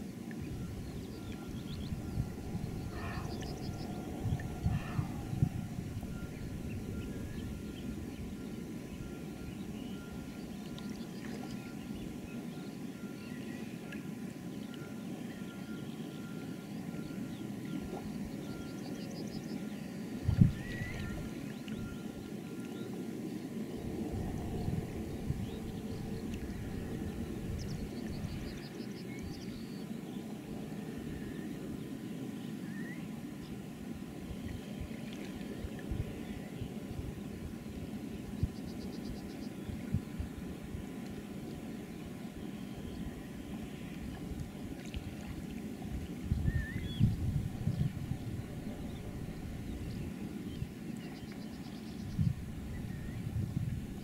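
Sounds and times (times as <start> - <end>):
steady low rumble: 0.0 - 12.8, 20.0 - 32.0, 33.3 - 54.0
faint bird chirps: 0.5 - 14.0, 14.6 - 23.0, 46.4 - 47.1.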